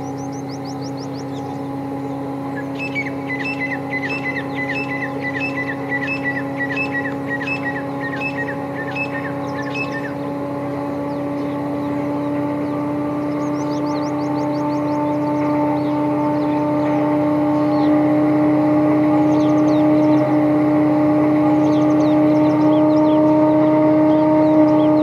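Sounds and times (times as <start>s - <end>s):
bird short high calls: 0.0s - 18.1s
diesel locomotive engine drone: 0.0s - 25.0s.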